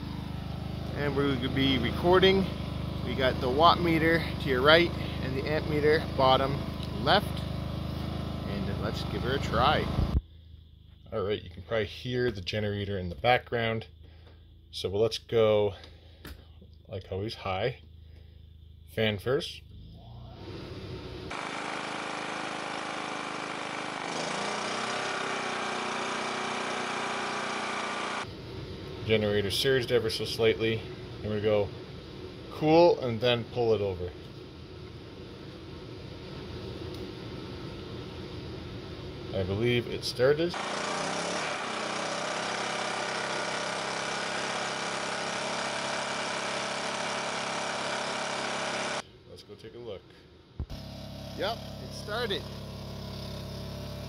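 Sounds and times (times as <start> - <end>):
generator engine running: 0.0 - 10.2, 20.3 - 49.0, 50.6 - 54.0.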